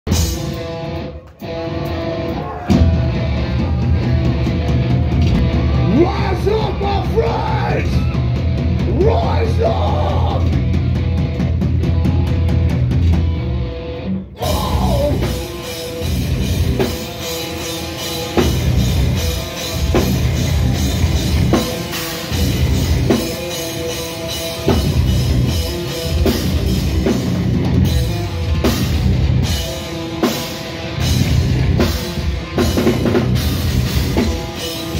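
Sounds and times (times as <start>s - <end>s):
bass guitar: 0.0s - 34.9s
distorted guitars: 0.0s - 34.9s
pounding drum kit: 0.1s - 13.7s, 14.4s - 34.9s
person singing: 14.4s - 15.5s.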